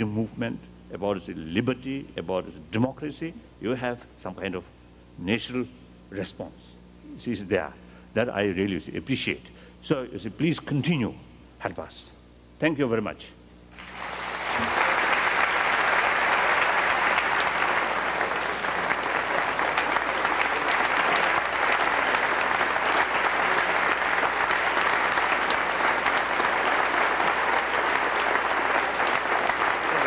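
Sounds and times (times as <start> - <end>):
audience applauding: 13.8 - 30.0.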